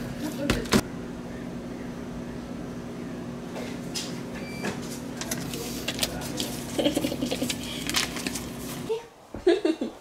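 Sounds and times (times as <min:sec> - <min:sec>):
steady low hum: 0:00.0 - 0:09.4
paper tickets rustling: 0:05.2 - 0:08.9.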